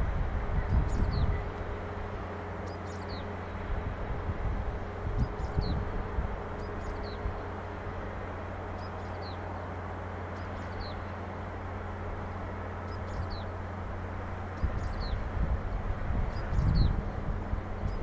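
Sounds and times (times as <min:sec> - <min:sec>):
wind rumbling on microphone: 0:00.0 - 0:09.7, 0:10.3 - 0:18.0
low outdoor background hum: 0:00.0 - 0:18.0.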